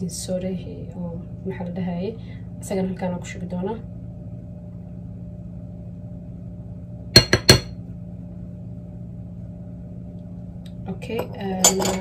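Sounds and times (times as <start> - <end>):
faint low hum: 0.0 - 12.0
metal spoon tapping steel bowl: 11.1 - 12.0.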